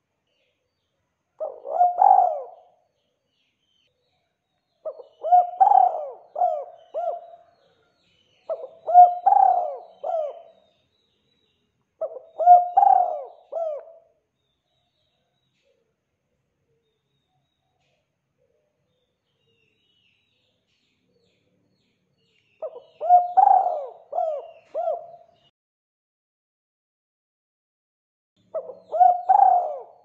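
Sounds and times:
dove cooing: 1.4 - 2.8, 4.9 - 7.8, 8.5 - 10.6, 12.0 - 14.1, 22.6 - 25.4, 28.5 - 30.0.

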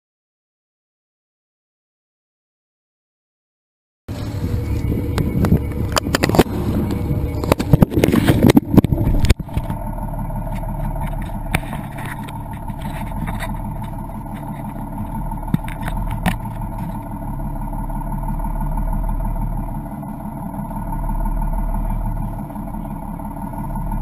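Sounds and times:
boat engine droning: 4.1 - 24.0
hands rubbing camera housing: 10.5 - 15.0.

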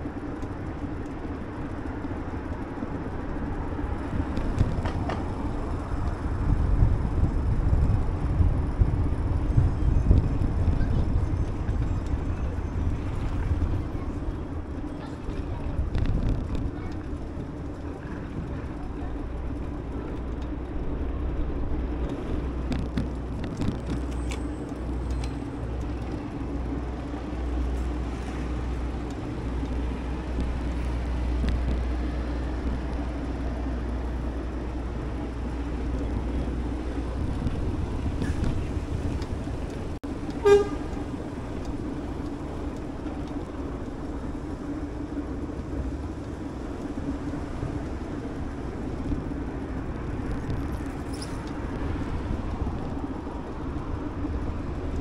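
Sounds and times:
wind and road noise from bicycle: 0.0 - 55.0
short horn toot: 40.4 - 41.0.

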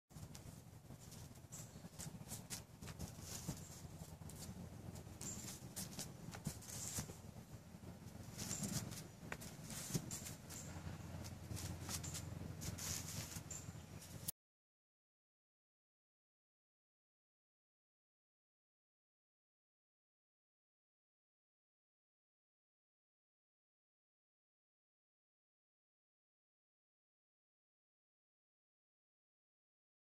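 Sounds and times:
faint clicks and rustles: 0.1 - 14.3
low steady hum: 0.1 - 14.3.

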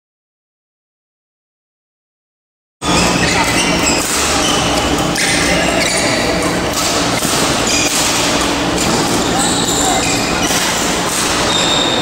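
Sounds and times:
several voices: 3.0 - 11.4
knocks of badminton play: 3.6 - 11.8.

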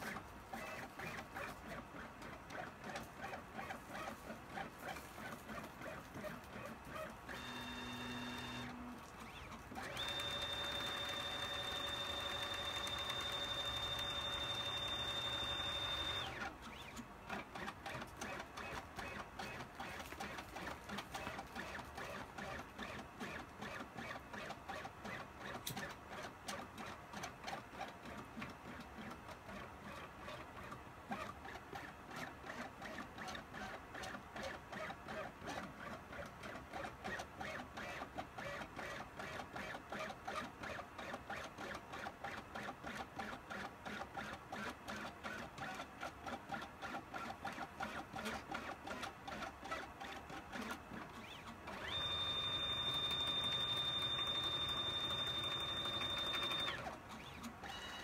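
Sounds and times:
stepper motors whirring: 7.3 - 16.4, 51.8 - 56.8.

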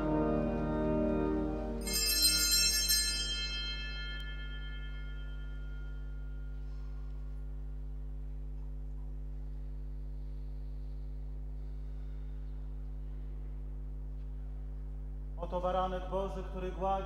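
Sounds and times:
electrical mains hum: 0.0 - 17.0
ringing tone: 1.8 - 7.1.

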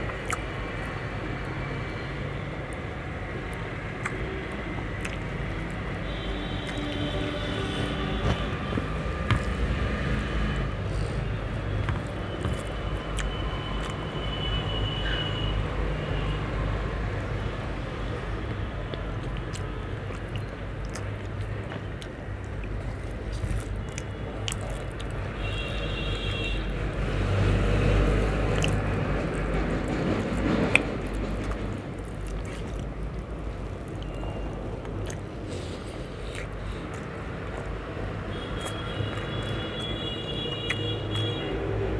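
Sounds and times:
soft chewing: 0.0 - 0.9, 3.5 - 9.8, 10.9 - 14.1, 18.4 - 25.9, 27.9 - 41.6.

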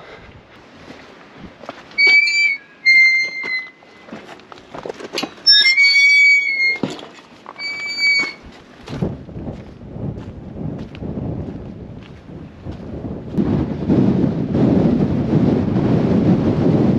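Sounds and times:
metal gate squeaking: 2.0 - 4.1, 5.2 - 8.5.

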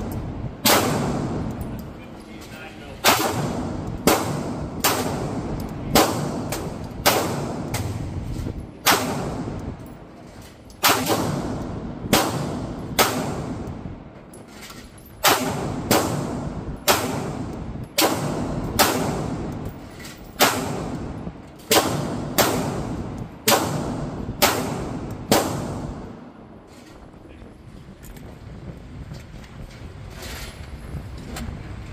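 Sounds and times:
pistol shots echoing indoors: 3.0 - 7.9, 8.8 - 9.6, 10.8 - 13.7, 15.2 - 19.6, 20.4 - 26.2.

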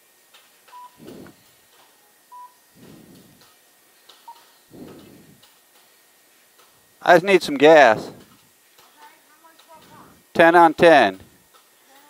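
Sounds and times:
keypad beeps: 0.7 - 1.0, 2.3 - 2.6, 4.2 - 4.5
soft rushing noise: 1.0 - 1.4, 2.7 - 3.4, 4.7 - 5.4.

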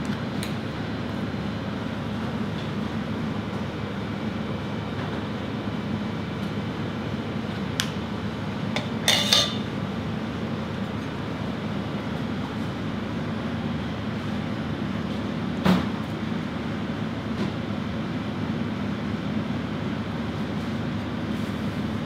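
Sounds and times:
low kitchen hum: 0.0 - 22.0
cutlery clattering on crockery: 9.1 - 9.6.

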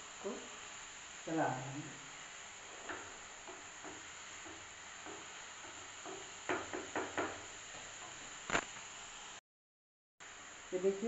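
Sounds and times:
wooden spatula knocking against pan: 2.8 - 8.2.

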